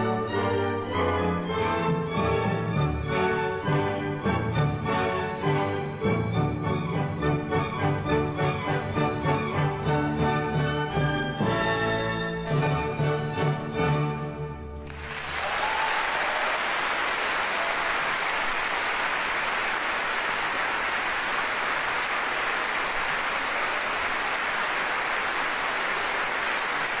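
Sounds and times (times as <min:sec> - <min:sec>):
audience applauding: 0:14.8 - 0:27.0.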